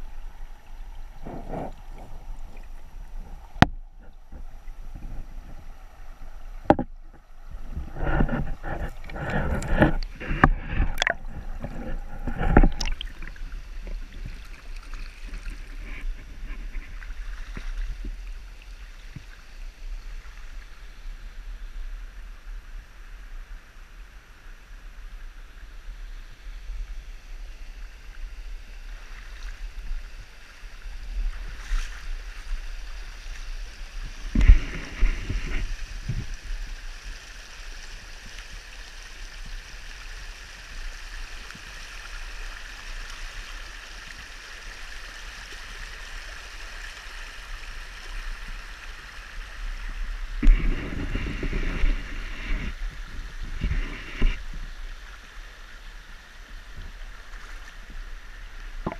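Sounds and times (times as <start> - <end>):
creek water running over stones: 0.0 - 58.9
water splashing: 7.6 - 19.3.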